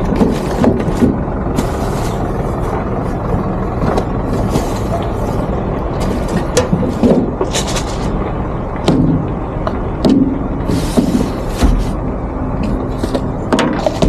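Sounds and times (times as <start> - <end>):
plastic bags rustling: 0.0 - 8.2
low engine rumble: 0.0 - 14.0.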